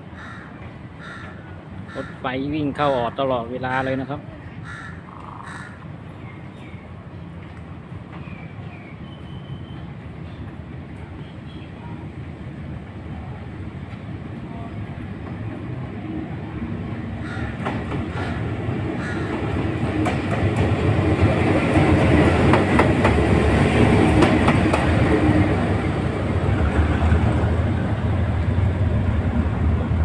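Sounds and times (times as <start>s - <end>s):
locomotive engine rumbling: 12.2s - 30.0s
train wheels clicking over rails: 17.2s - 30.0s.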